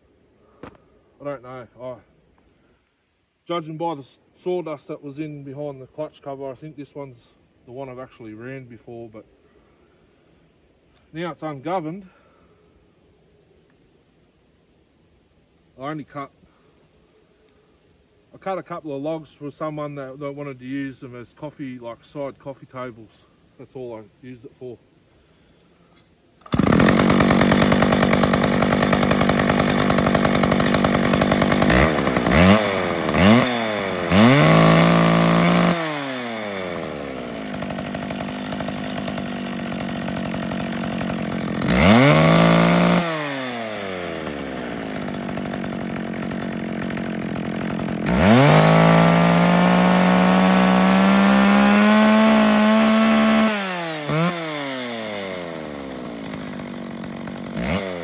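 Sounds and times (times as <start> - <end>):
chainsaw revving: 26.4 - 58.0.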